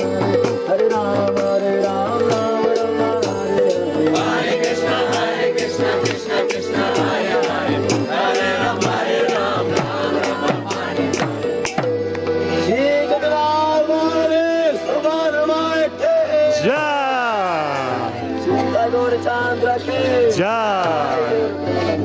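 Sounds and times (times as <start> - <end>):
group singing: 1.2 - 11.8.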